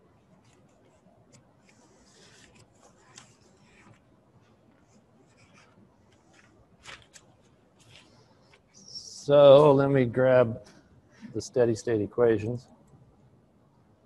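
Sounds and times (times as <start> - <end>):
faint scratching and rustling: 0.2 - 9.8.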